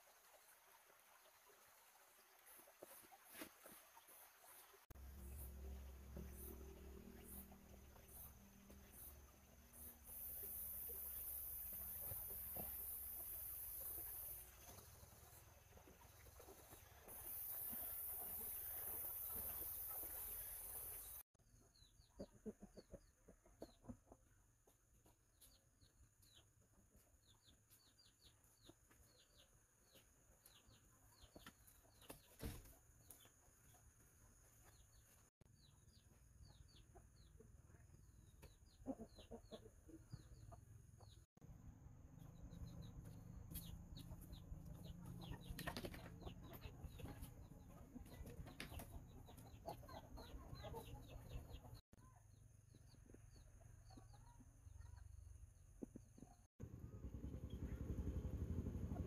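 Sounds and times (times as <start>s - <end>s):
chicken clucking: 21.6s - 32.4s, 34.6s - 41.2s, 42.3s - 52.2s, 52.8s - 55.1s.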